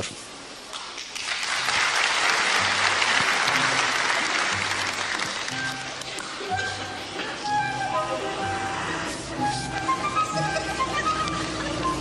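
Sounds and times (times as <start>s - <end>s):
large audience applauding: 0.7s - 6.3s
low musical backing notes: 1.6s - 12.0s.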